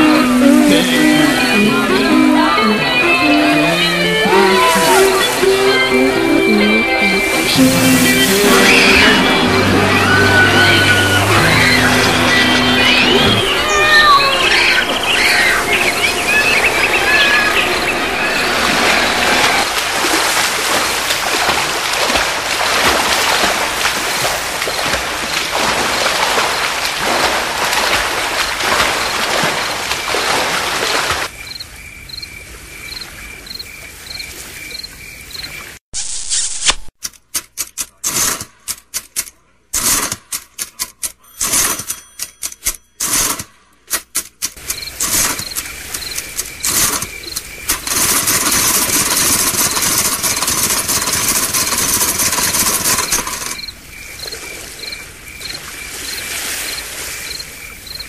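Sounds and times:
seaside surf: 0:00.0 - 0:31.3, 0:44.6 - 0:58.0
insect chirping: 0:31.3 - 0:35.7, 0:44.6 - 0:58.0.

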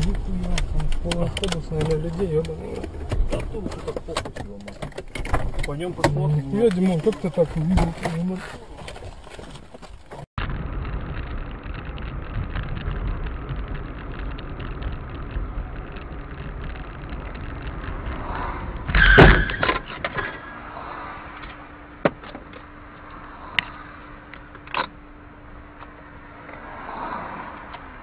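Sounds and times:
sharp clicks: 0:00.0 - 0:07.5
steady low hum: 0:00.0 - 0:18.9
loud crunching collision: 0:00.0 - 0:22.5
car road and engine noise: 0:00.0 - 0:28.0.

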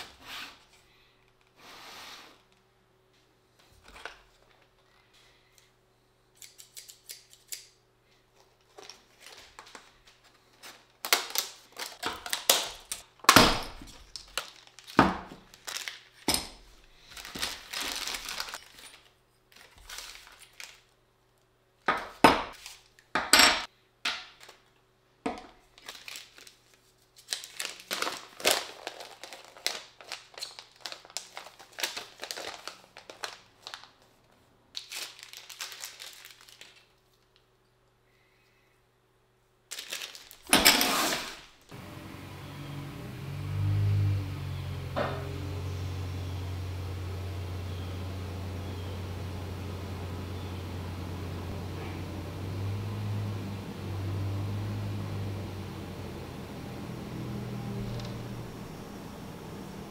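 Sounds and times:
plastic packaging crinkling and tearing: 0:08.6 - 0:13.1, 0:13.7 - 0:16.3, 0:17.0 - 0:21.0, 0:22.5 - 0:23.0, 0:25.7 - 0:37.4, 0:39.7 - 0:41.4
paper sheet handled: 0:17.1 - 0:20.8, 0:25.8 - 0:34.2
faint steady hum: 0:41.6 - 0:59.9.

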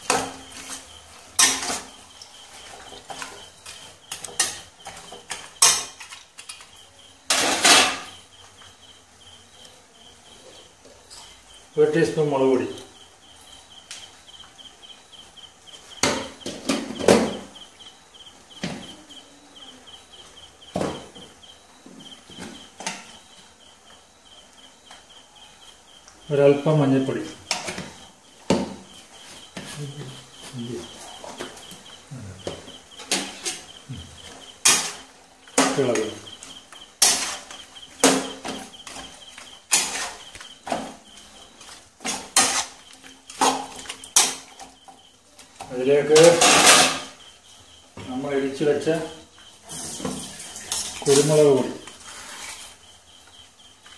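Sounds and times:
cricket chirping: 0:00.0 - 0:53.9
steel spoon scraping a pan: 0:00.1 - 0:06.6, 0:33.0 - 0:44.6, 0:46.2 - 0:47.2, 0:49.7 - 0:52.8.

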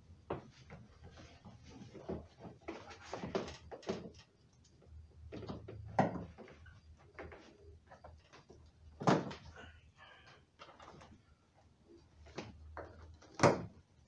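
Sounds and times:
insulation pad rustling and scraping: 0:00.4 - 0:04.2.

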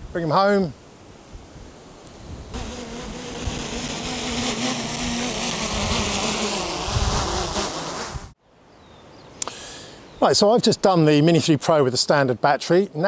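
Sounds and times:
strong wind hissing: 0:01.3 - 0:08.4
drone propellers buzzing: 0:02.6 - 0:08.3.

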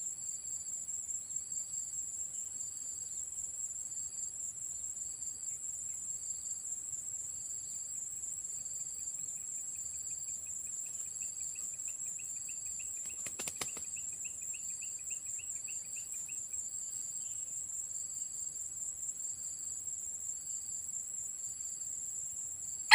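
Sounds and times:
cricket-like chirp: 0:00.0 - 0:22.9
insects droning: 0:00.0 - 0:22.9
fast pulsing insect trill: 0:07.4 - 0:22.9
rooster wings flapping: 0:13.0 - 0:13.9.

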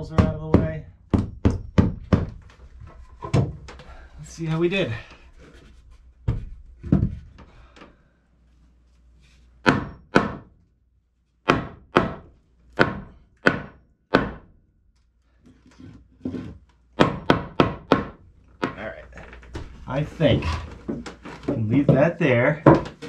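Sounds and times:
dull thuds on wooden framing: 0:00.0 - 0:02.5, 0:06.2 - 0:07.5, 0:11.5 - 0:14.5
sharp knocks on wood: 0:00.2 - 0:02.4.

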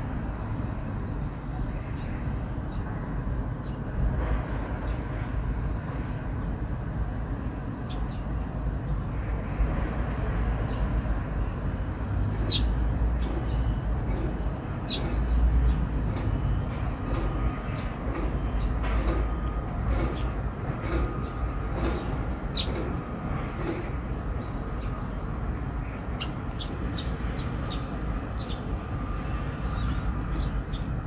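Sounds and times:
sparrows chirping: 0:07.4 - 0:09.7, 0:10.4 - 0:31.0.

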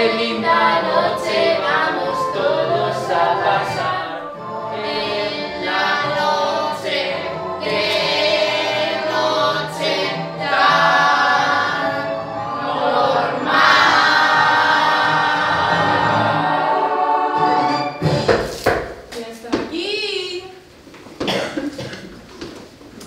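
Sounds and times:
young voices singing in chorus: 0:00.0 - 0:18.0.

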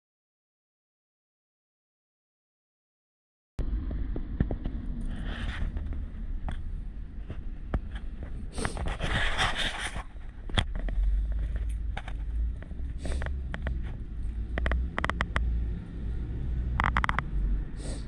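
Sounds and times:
rush of noise: 0:03.6 - 0:18.0
sharp clicks: 0:12.6 - 0:15.5.

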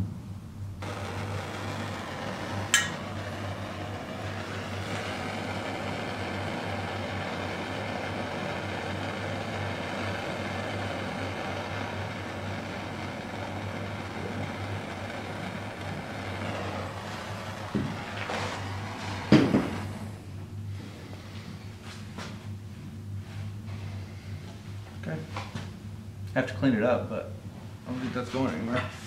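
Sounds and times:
torch flame hissing: 0:00.8 - 0:21.7.

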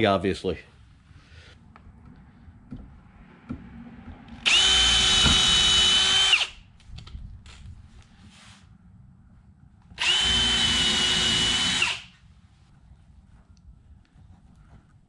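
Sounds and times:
cordless drill boring into wood: 0:04.4 - 0:06.6, 0:10.0 - 0:12.2.

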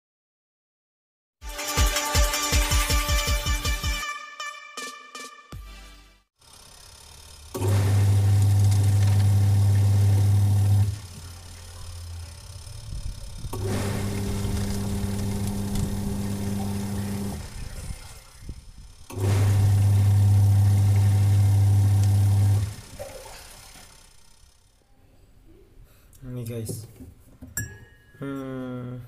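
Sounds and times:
washing machine motor humming: 0:06.4 - 0:24.8.

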